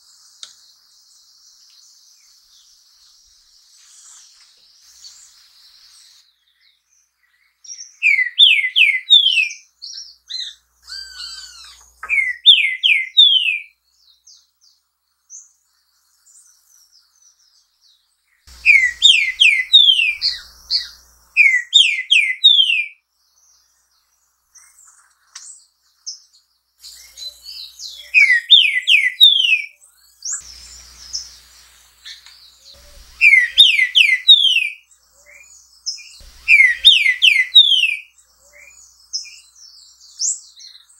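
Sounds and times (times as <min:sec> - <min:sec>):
bird whistled song phrases: 0:07.6 - 0:13.7, 0:18.6 - 0:23.0, 0:26.8 - 0:31.4, 0:32.0 - 0:40.9
thin high chirps: 0:18.5 - 0:22.1, 0:36.3 - 0:38.0.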